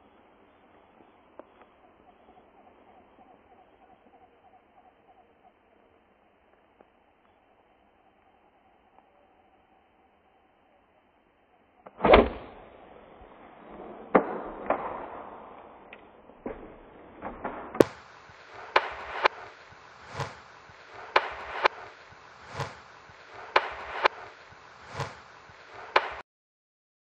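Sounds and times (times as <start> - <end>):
regular beat of sharp hits: 17.8 - 26.2.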